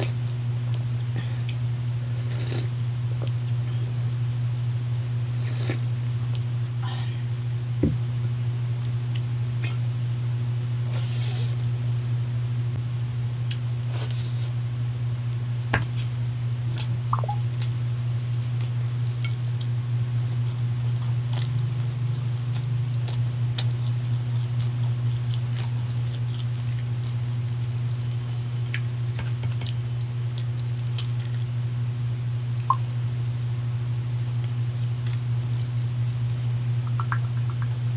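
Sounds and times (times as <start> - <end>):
steady low hum: 0.0 - 37.9
chewing and mouth smacks: 16.8 - 31.5, 36.8 - 37.7.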